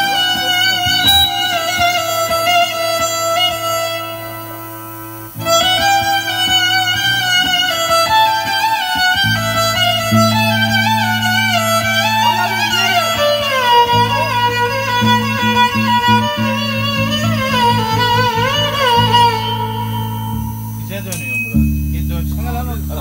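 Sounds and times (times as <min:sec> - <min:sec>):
violin melody: 0:00.0 - 0:23.0
person speaking: 0:20.7 - 0:23.0.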